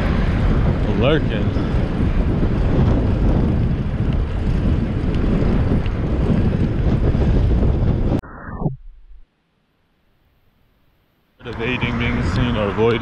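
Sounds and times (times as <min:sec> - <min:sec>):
wind rumble on microphone: 0:00.0 - 0:09.2.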